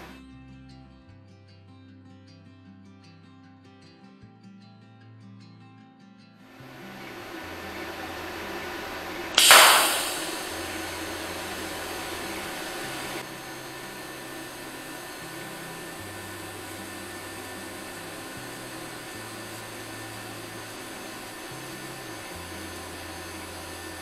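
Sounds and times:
welding arc hissing buzz: 6.6s - 24.0s
welding arc crackle: 9.4s - 13.2s.

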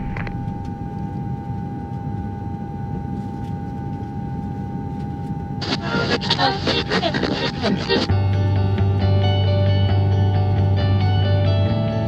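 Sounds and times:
engine rumble: 0.0s - 1.5s
high whine: 0.0s - 12.0s.

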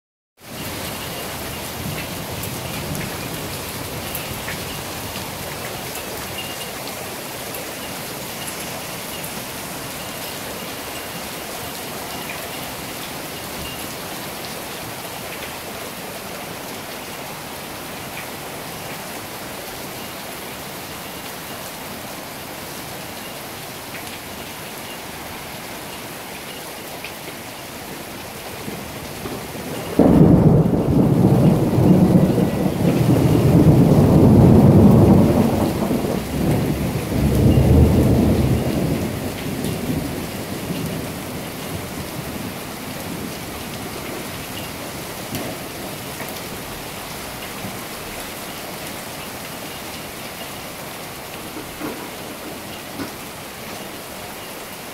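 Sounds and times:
heavy rain on wet paving: 0.4s - 54.9s.

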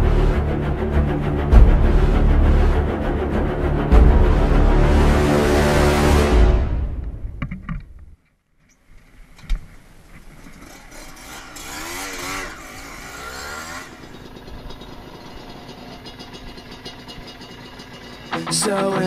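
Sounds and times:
dirt bike engine revving: 10.5s - 19.0s.

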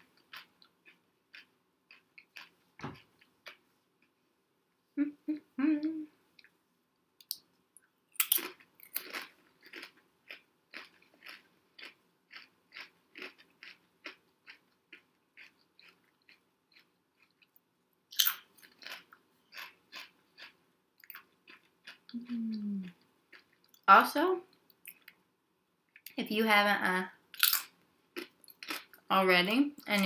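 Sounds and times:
potato chips crunching: 0.2s - 2.6s, 8.2s - 17.5s, 18.1s - 22.3s, 27.4s - 29.0s
short hum of voice: 22.2s - 22.9s.

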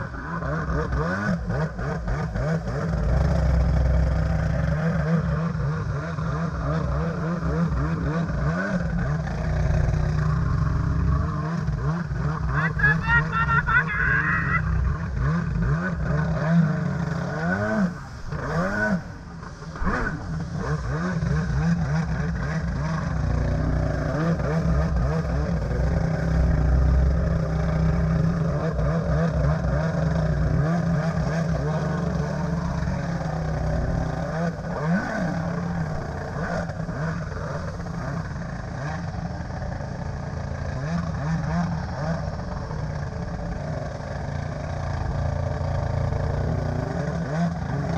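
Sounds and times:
jet ski engine revving: 0.0s - 47.9s.

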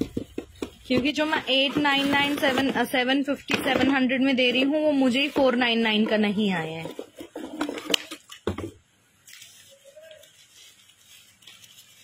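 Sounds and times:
wrapping rustling: 9.2s - 12.0s.

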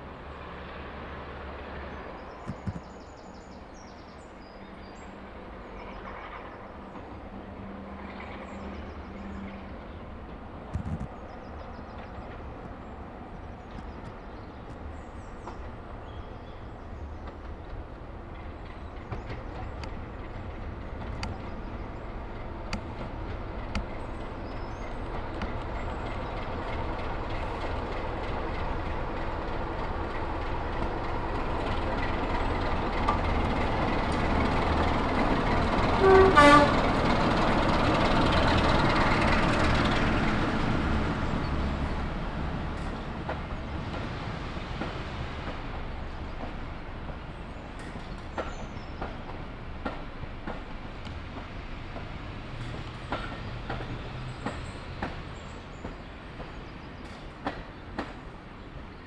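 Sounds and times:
diesel locomotive engine: 0.0s - 59.0s
train horn blast: 35.9s - 37.0s.

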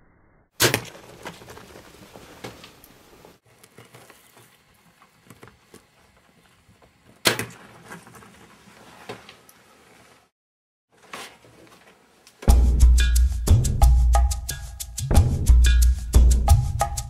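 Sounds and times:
bow shot crack: 0.0s - 1.4s.

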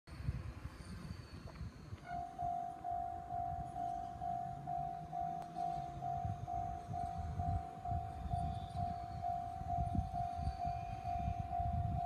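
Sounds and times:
level crossing warning bell: 2.1s - 12.0s.

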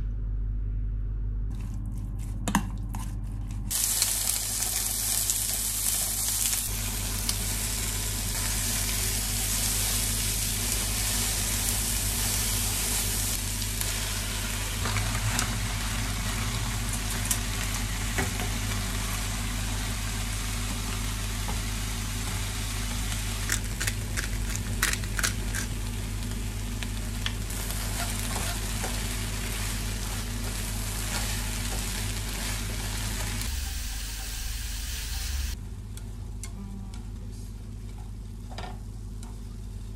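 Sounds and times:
vegetables sizzling in frying pan: 3.7s - 24.2s, 25.4s - 35.6s.

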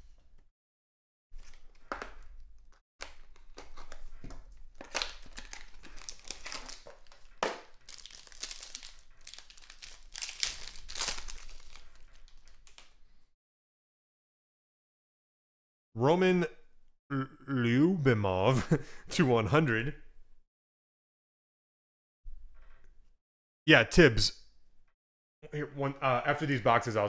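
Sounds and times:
cards being handled: 1.4s - 13.0s
wrapper torn open and crinkled: 4.6s - 13.0s.

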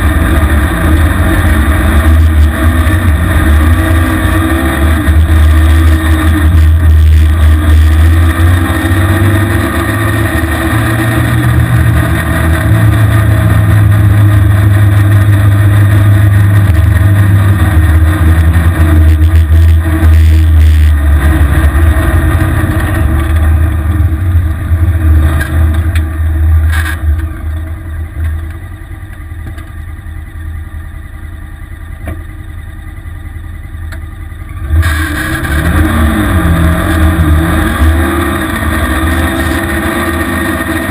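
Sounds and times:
small vehicle engine revving: 0.0s - 24.2s, 34.6s - 40.9s.

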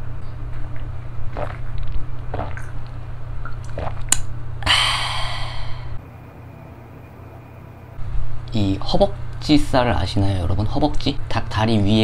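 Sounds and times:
low steady hum: 0.0s - 12.0s
person swallowing: 1.3s - 2.8s, 3.4s - 6.0s.

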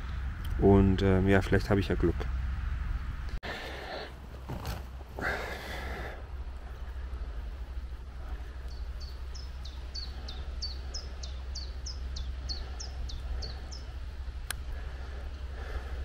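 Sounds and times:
steady low rumble: 0.0s - 16.0s
songbird chirping: 6.7s - 15.4s.

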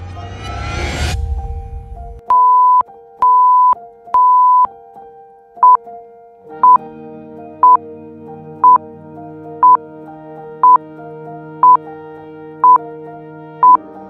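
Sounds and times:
long electronic beeps: 2.3s - 4.7s
short countdown timer beeps: 2.3s - 4.7s
synth music: 5.6s - 14.0s.

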